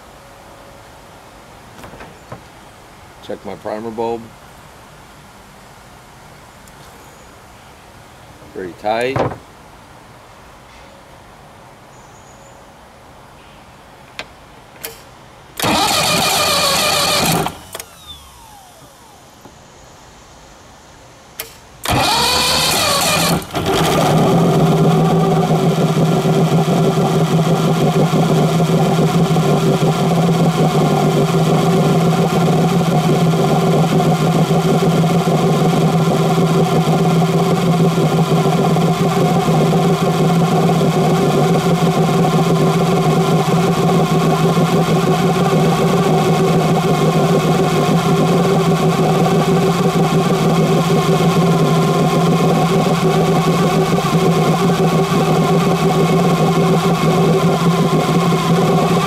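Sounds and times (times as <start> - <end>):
outboard engine running: 15.6 - 19.0, 21.8 - 59.0
starter motor cranking: 15.6 - 19.0, 21.8 - 59.0.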